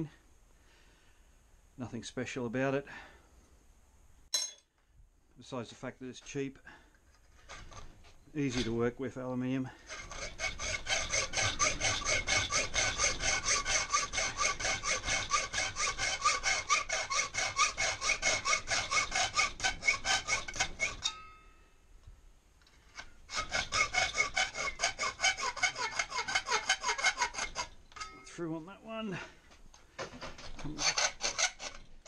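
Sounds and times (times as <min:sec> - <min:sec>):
hacksaw cutting metal sheet: 0:09.9 - 0:21.3, 0:23.0 - 0:28.2, 0:30.0 - 0:31.9.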